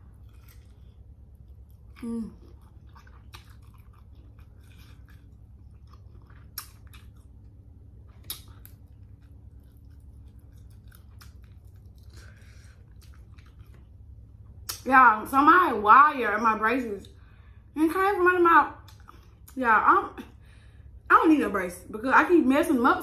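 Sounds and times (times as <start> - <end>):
chewing and wet mouth sounds: 0.0 - 14.9, 18.8 - 19.6
steady low hum: 0.0 - 23.0.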